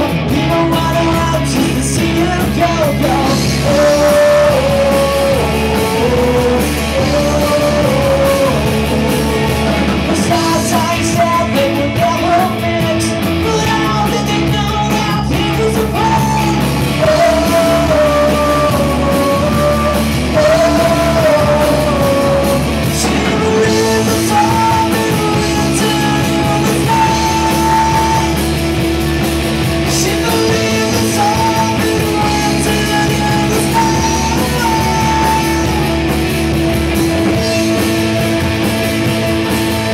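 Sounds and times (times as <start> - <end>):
electric guitar: 0.0 - 39.9
live rock band playing: 0.0 - 39.9
man singing lead: 0.0 - 39.9.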